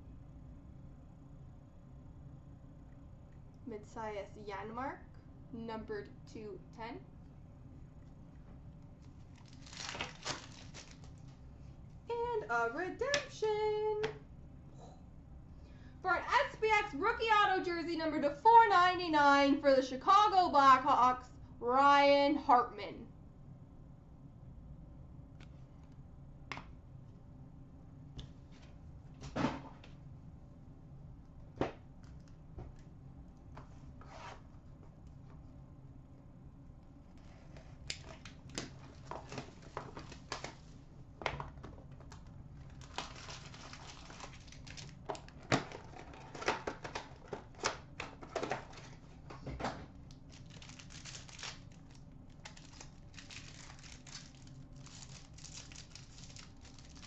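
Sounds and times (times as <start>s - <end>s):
foil wrappers crinkling and tearing: 9.2s - 11.4s, 37.9s - 40.7s, 42.1s - 49.3s, 50.1s - 57.0s.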